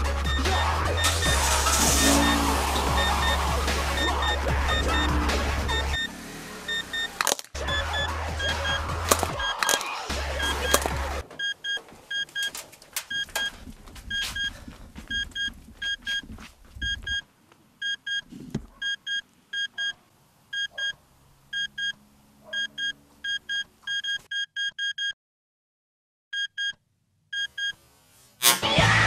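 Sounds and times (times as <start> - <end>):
alarm clock beeping: 0.3 - 6.1, 6.7 - 8.8, 15.1 - 16.2, 21.6 - 22.0, 22.6 - 25.2
low car rumble: 0.4 - 9.4.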